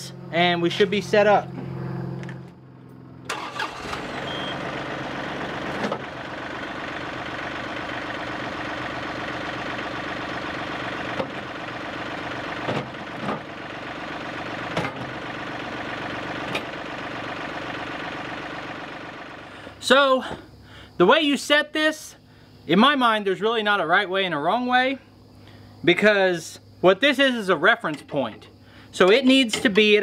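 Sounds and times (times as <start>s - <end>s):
tractor diesel engine running: 0.0s - 21.4s.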